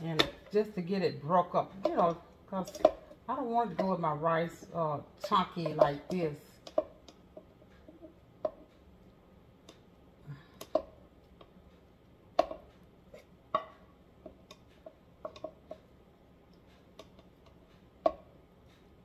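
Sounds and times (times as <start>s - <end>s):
utensil knocking against pan: 5.2s - 8.7s, 13.6s - 15.8s.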